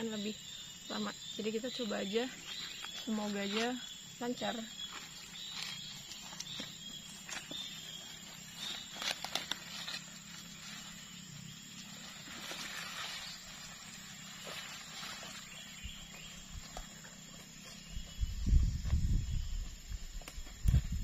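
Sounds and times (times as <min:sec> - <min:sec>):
rustle of leaves and grass: 0:00.0 - 0:21.0
footsteps in undergrowth: 0:02.1 - 0:21.0
twigs snapping: 0:08.4 - 0:10.5.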